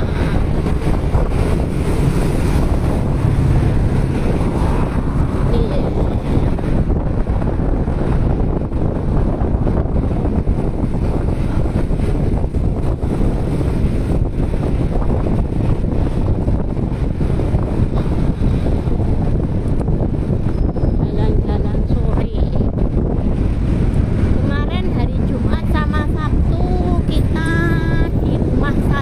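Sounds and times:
road noise: 0.0s - 29.0s
vehicle engine running: 0.0s - 29.0s
wind rumble on microphone: 0.0s - 29.0s.

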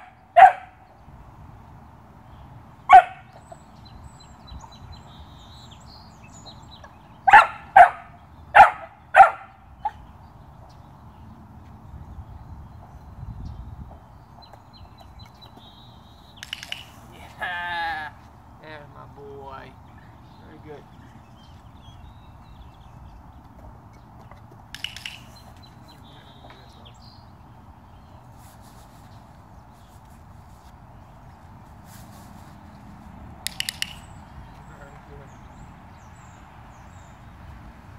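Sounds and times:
puppy barking: 0.0s - 0.8s, 2.9s - 3.3s, 7.3s - 10.0s
sharp clicks: 16.4s - 17.1s, 24.7s - 25.7s, 33.4s - 34.2s.

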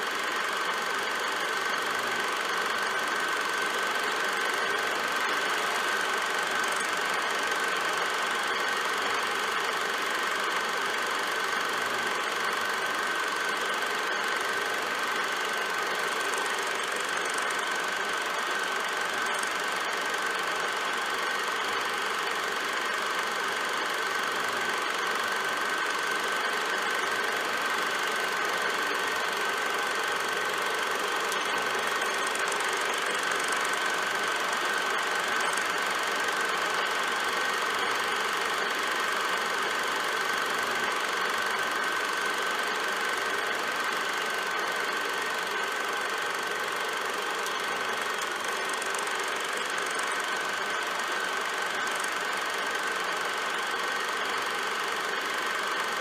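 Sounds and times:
film projector whirring: 0.0s - 56.0s.

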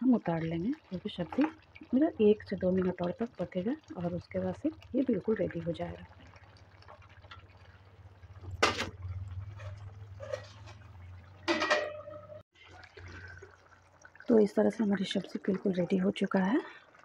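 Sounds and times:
spatula stirring curry in pan: 8.6s - 12.4s
steel plate clanging on pan: 9.5s - 12.4s.

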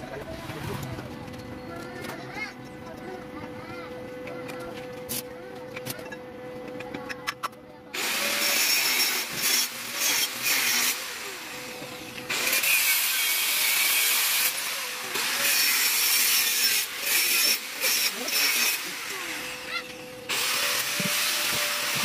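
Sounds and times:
welding arc crackling hiss: 8.0s - 22.0s.

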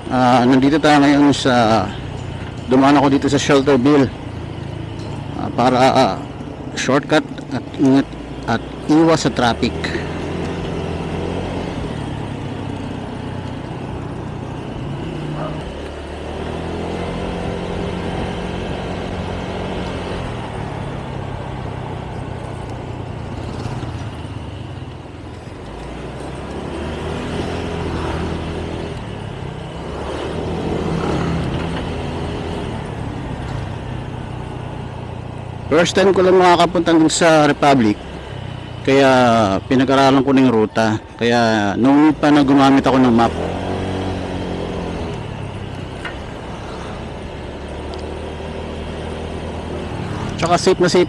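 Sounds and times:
road noise: 0.0s - 51.0s
scooter engine running: 0.0s - 51.0s.

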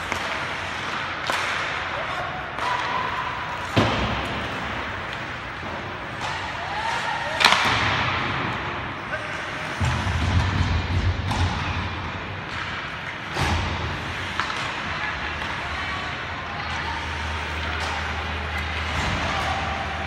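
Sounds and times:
hockey sticks and puck clacking: 0.0s - 20.0s.

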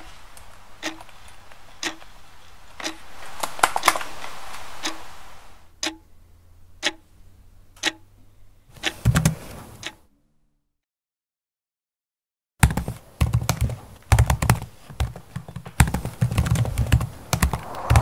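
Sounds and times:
clock ticking: 0.8s - 1.2s, 1.8s - 2.1s, 2.8s - 3.0s, 5.8s - 6.1s, 6.8s - 7.1s, 7.8s - 8.1s
burst of noise with low rumble: 16.8s - 18.0s.

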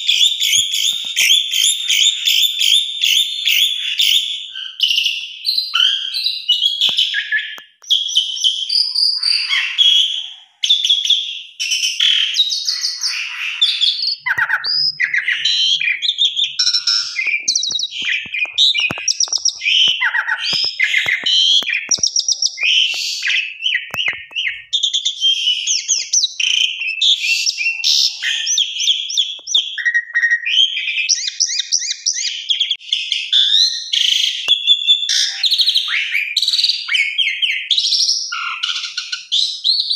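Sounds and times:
starling singing with chattering: 11.6s - 32.8s.

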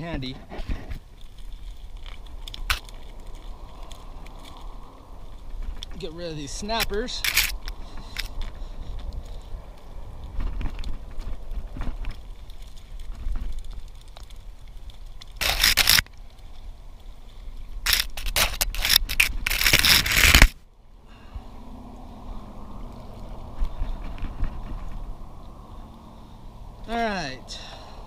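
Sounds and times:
net rope rubbing and scraping: 0.0s - 9.6s, 15.4s - 16.1s, 17.8s - 20.6s
low wind rumble: 0.0s - 28.0s.

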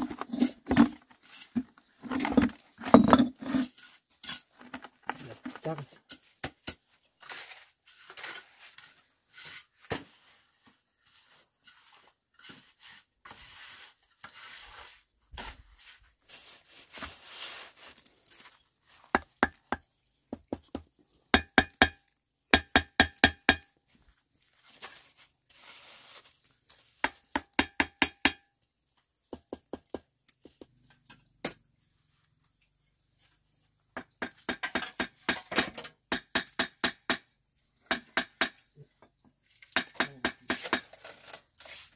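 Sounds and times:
trowel scraping mortar: 0.0s - 4.7s, 6.1s - 19.4s, 24.4s - 27.6s, 39.6s - 41.9s
trowel tapping bricks: 19.2s - 22.0s, 22.6s - 23.8s, 27.0s - 28.5s, 34.0s - 37.2s, 37.8s - 38.7s, 39.6s - 41.0s.

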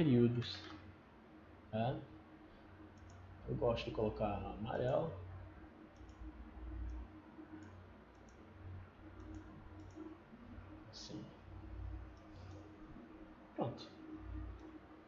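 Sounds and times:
low steady hum: 0.0s - 15.0s
computer mouse clicking: 2.9s - 3.2s, 5.9s - 10.2s, 12.0s - 12.7s, 14.4s - 14.8s.

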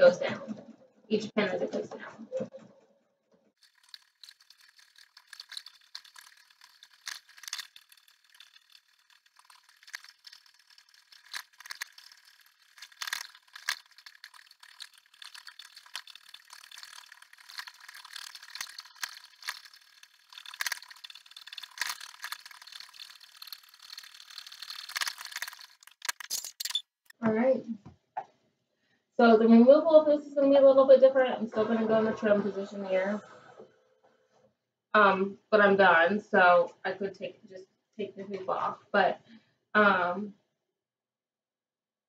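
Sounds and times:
embroidery machine needle rattle: 3.6s - 27.1s
machine clicks: 3.6s - 27.1s.

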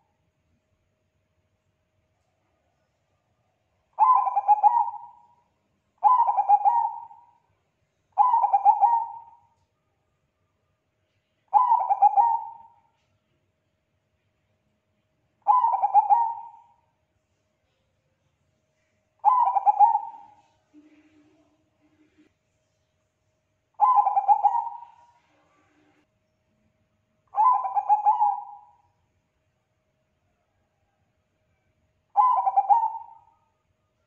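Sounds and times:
dove cooing: 4.0s - 5.3s, 6.0s - 7.4s, 8.2s - 9.5s, 11.5s - 12.8s, 15.4s - 16.8s, 19.2s - 22.2s, 23.8s - 25.8s, 27.4s - 28.8s, 32.2s - 33.4s.

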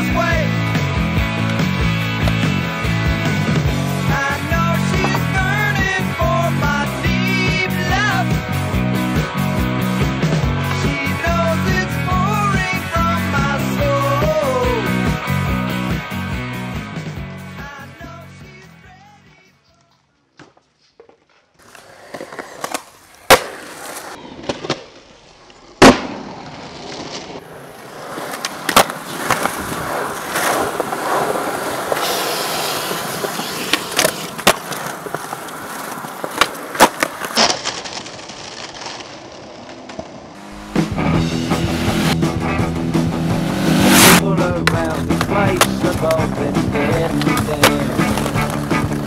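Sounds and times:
music: 0.0s - 20.0s, 40.5s - 49.0s
skateboard wheels rolling on concrete: 0.0s - 49.0s
skateboard popping and landing: 1.4s - 8.3s, 20.4s - 40.8s, 43.5s - 49.0s.

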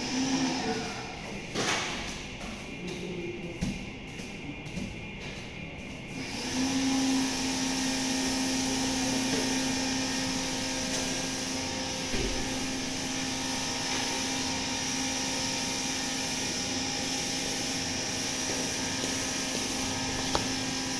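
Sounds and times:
machine motor blower rush: 6.1s - 20.9s.

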